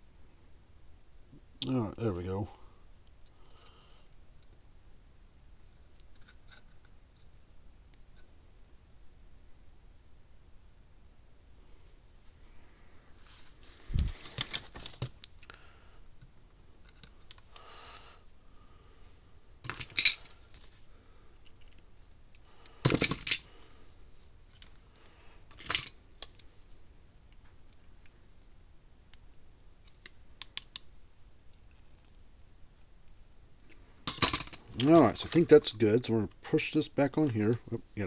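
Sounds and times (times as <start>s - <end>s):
hand tools clicking and rattling: 19.7s - 20.3s, 22.6s - 23.4s, 25.6s - 26.4s, 34.1s - 35.6s.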